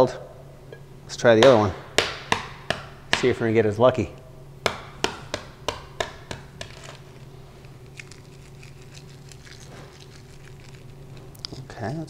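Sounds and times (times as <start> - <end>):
egg shell being tapped: 4.6 - 7.0
egg shell crackling while peeled: 6.4 - 12.0.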